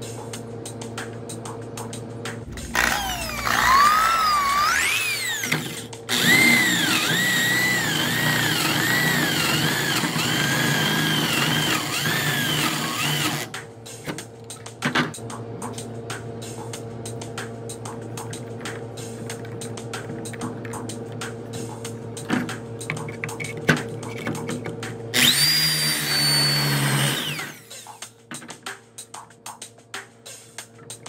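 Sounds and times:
background music: 0.0 - 31.0
electric drill whining: 2.5 - 13.5, 25.2 - 28.0.

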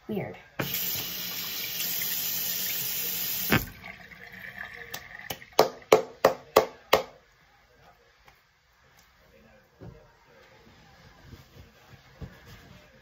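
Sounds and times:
sink tap running: 0.6 - 5.7.

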